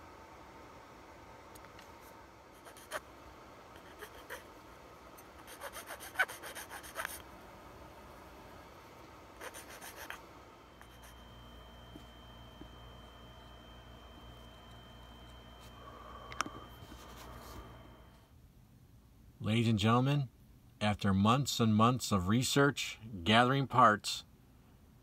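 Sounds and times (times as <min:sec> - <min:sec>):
hand file scraping: 0:05.4 - 0:07.2
faint steady high tone: 0:09.5 - 0:18.4.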